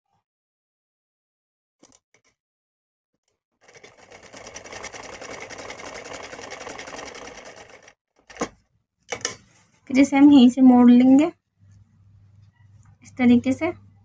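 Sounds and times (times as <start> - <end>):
sewing machine stitching: 3.6 - 8.5.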